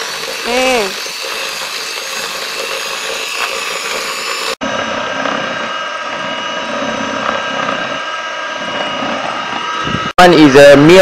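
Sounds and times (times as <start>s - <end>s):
electric hand mixer whirring: 0.0s - 11.0s.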